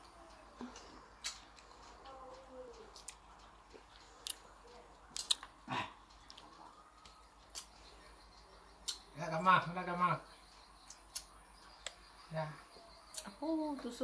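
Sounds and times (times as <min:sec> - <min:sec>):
faint background voices: 0:00.0 - 0:09.4.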